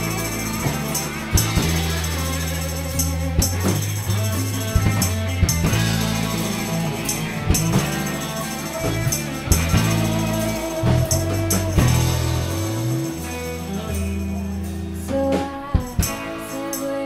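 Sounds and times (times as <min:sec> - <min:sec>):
drum kit: 0:00.0 - 0:17.0
electric guitar: 0:00.0 - 0:17.0.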